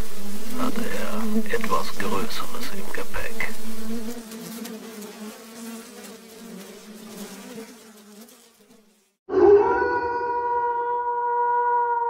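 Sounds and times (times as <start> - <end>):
flies buzzing: 0.0 - 9.2
loud sustained pitched tone: 9.3 - 11.7.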